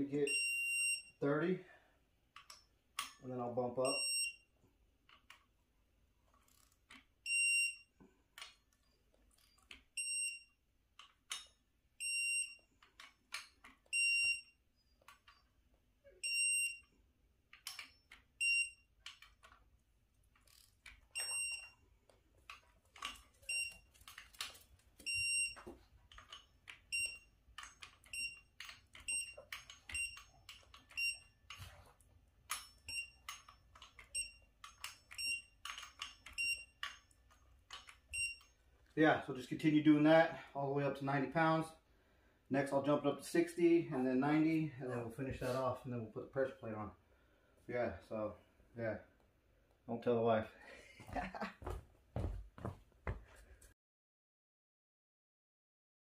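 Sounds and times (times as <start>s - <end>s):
torque wrench beeps: 0.2s - 1.2s, 3.8s - 4.6s, 6.5s - 8.0s, 8.8s - 10.6s, 11.3s - 12.7s, 13.4s - 15.5s, 16.1s - 17.0s, 17.6s - 18.9s, 20.5s - 21.8s, 23.0s - 24.2s, 25.0s - 31.7s, 32.5s - 38.6s
wrench and tool clicks: 6.3s - 7.1s, 19.0s - 21.8s, 25.5s - 38.6s.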